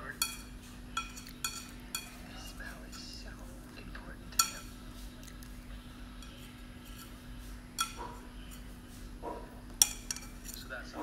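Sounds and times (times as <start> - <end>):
chopsticks clinking against bowl: 0.2 - 3.2, 4.3 - 5.4, 6.2 - 7.1, 7.8 - 8.7, 9.8 - 10.7.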